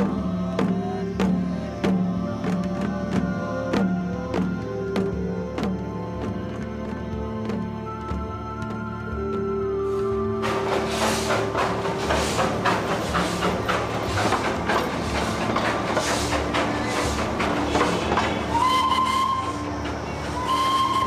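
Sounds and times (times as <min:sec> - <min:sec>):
steam locomotive clattering: 0:08.6 - 0:21.0
steam hiss: 0:09.8 - 0:21.0
high train whistle: 0:17.8 - 0:21.0.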